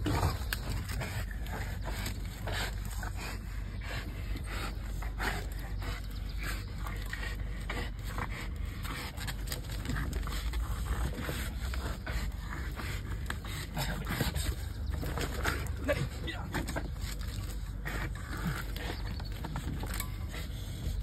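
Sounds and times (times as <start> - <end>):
dog breathing hard: 0.0 - 21.0
paws scrabbling on dirt: 0.0 - 21.0.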